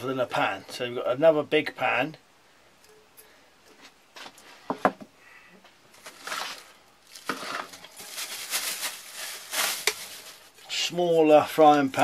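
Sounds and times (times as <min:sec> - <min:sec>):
plastic wrapping crinkling: 0:05.9 - 0:11.0.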